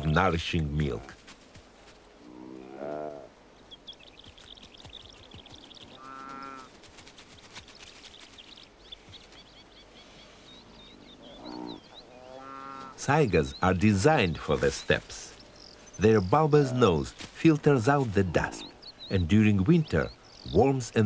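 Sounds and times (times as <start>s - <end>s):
antelope calling: 2.2s - 6.9s, 7.5s - 21.0s
faint high chirping: 2.4s - 17.1s.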